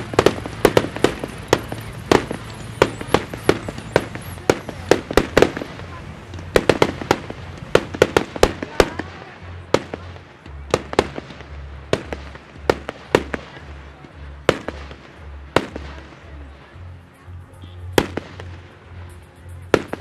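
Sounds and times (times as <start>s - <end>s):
firework shells bursting: 0.0s - 9.1s.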